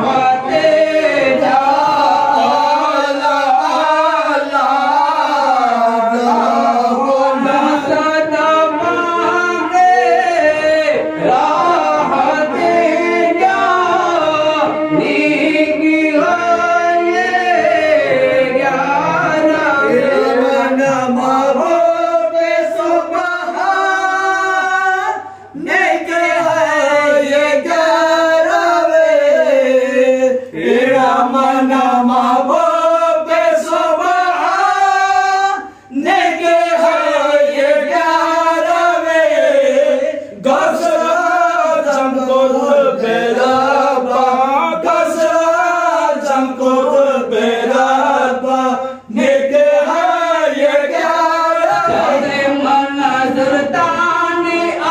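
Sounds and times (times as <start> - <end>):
men singing a devotional chant: 0.0 - 54.9.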